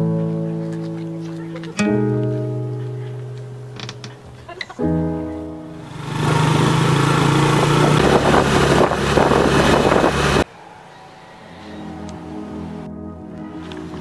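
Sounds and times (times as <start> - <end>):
soft background music: 0.0 - 6.4, 11.2 - 14.0
wind and road noise: 5.7 - 14.0
motorcycle engine running: 5.8 - 10.4.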